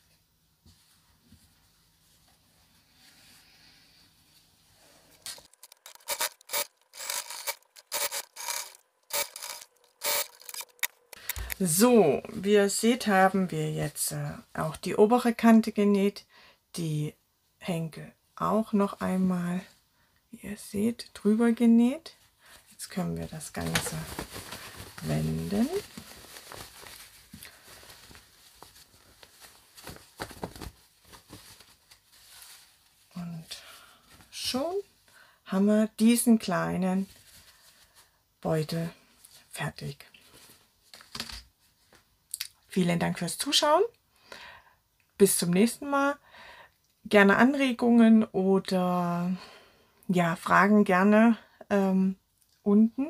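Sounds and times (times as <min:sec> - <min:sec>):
fabric rustling: 0:00.0 - 0:12.4, 0:22.2 - 0:35.0, 0:36.9 - 0:38.2, 0:40.2 - 0:42.1
sewing machine stitching: 0:05.4 - 0:11.1.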